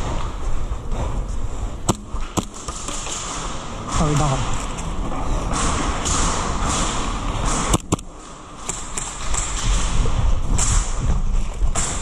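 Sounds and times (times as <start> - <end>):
sharp clicks: 7.4 - 9.9.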